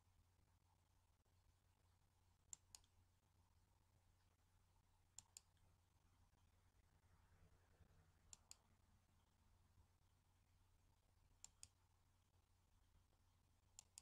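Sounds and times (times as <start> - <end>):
mouse button clicks: 8.3 - 8.6, 11.4 - 11.8, 13.8 - 14.0.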